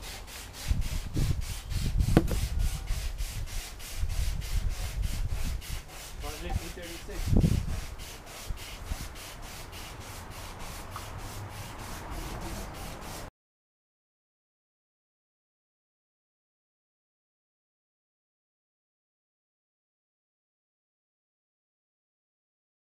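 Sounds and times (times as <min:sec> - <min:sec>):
sandpaper rubbing on metal panel: 0:00.0 - 0:13.3
knocks on car body: 0:02.1 - 0:02.4.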